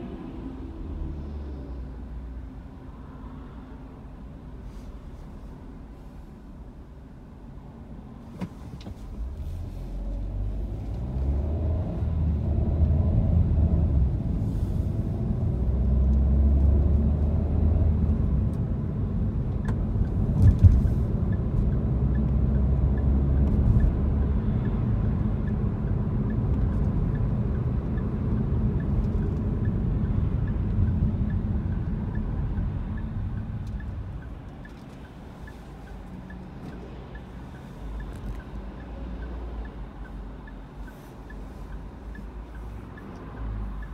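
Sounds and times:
engine and road rumble: 0:00.0 - 0:43.9
faint regular ticking: 0:21.2 - 0:43.9.

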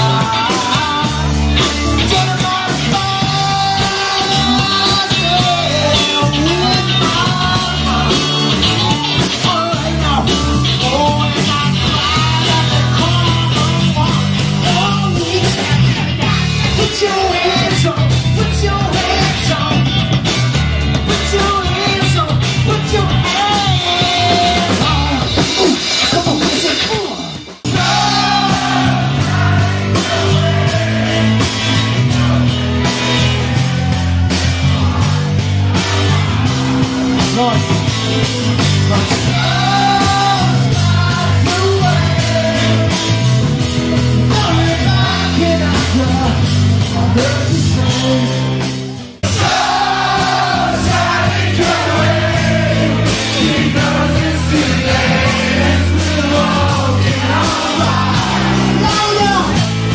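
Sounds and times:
man singing into microphone: 0:00.0 - 0:19.9, 0:21.1 - 0:26.9, 0:38.9 - 0:43.1, 0:44.3 - 0:48.6
bass guitar: 0:00.0 - 0:59.9
drums: 0:00.0 - 0:59.9
electric guitar: 0:00.0 - 0:59.9.

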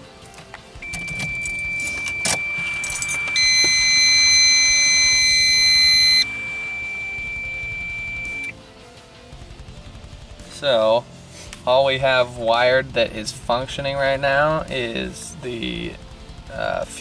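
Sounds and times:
loud buzzy warning tone: 0:00.8 - 0:08.5
steady high warning beep: 0:00.8 - 0:08.5.

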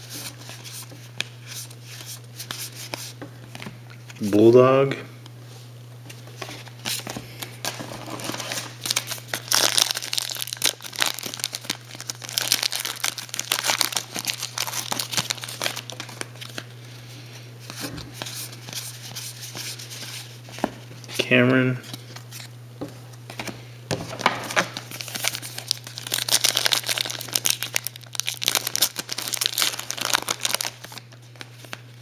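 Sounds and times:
wrapper crinkling and tearing: 0:07.6 - 0:16.6, 0:24.2 - 0:31.8.

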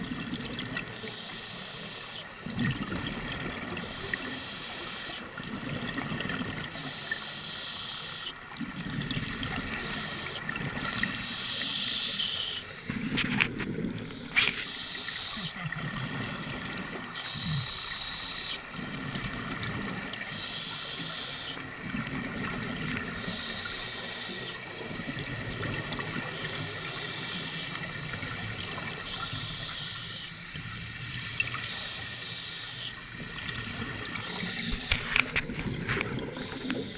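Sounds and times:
exhale bubbling: 0:00.0 - 0:36.9
regulator inhale hiss: 0:00.9 - 0:02.3, 0:03.8 - 0:05.3, 0:06.8 - 0:08.4, 0:09.7 - 0:13.2, 0:14.0 - 0:15.6, 0:17.2 - 0:21.6, 0:23.1 - 0:27.9, 0:28.5 - 0:33.2, 0:34.0 - 0:35.3, 0:36.3 - 0:36.9.

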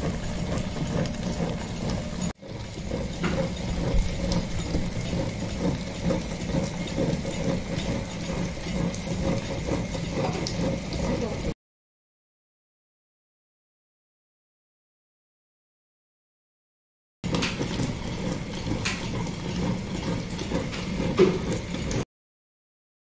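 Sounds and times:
wet grinder churning paste: 0:00.0 - 0:11.6, 0:17.2 - 0:22.0.

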